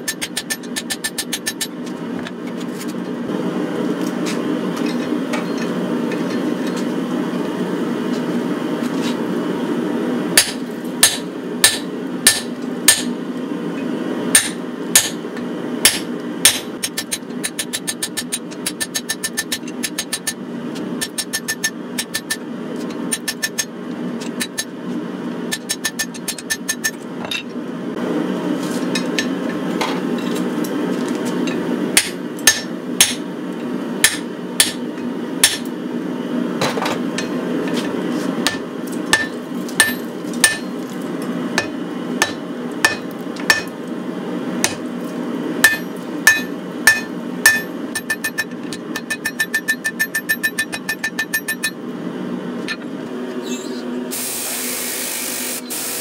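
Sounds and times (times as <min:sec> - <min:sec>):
hammer striking metal on anvil: 0:10.4 - 0:13.2, 0:14.3 - 0:15.2, 0:15.8 - 0:20.4, 0:32.0 - 0:33.3, 0:34.0 - 0:35.7, 0:38.4 - 0:40.7, 0:41.6 - 0:43.7, 0:45.6 - 0:51.8.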